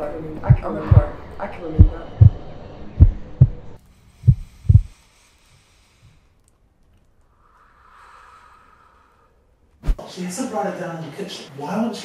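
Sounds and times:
heartbeat thumps: 0:00.4 - 0:04.9
faint hiss: 0:07.2 - 0:10.2.

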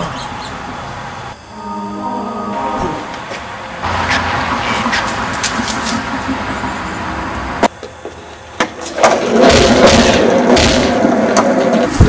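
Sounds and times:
skateboard rolling on rough concrete: 0:07.8 - 0:12.0.

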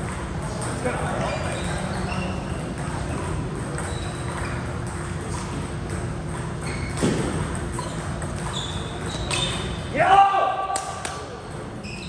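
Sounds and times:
sports hall din: 0:00.0 - 0:12.0
shoe squeaks: 0:01.1 - 0:05.4, 0:06.6 - 0:09.9, 0:11.8 - 0:12.0.

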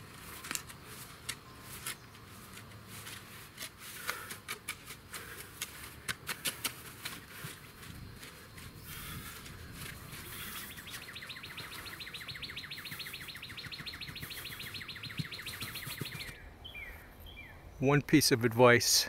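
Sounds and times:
rake scraping soil: 0:00.0 - 0:11.3.

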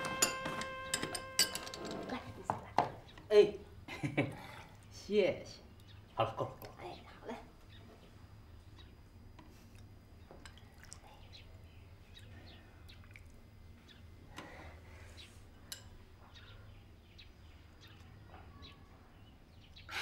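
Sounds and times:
spoon clinking on porcelain bowls: 0:00.0 - 0:02.6.

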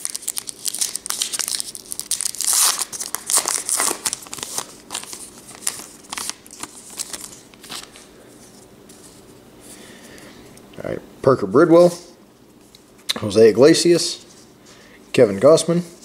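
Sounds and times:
wrapper tearing and crinkling: 0:00.0 - 0:08.0
cards being handled: 0:00.0 - 0:09.2.

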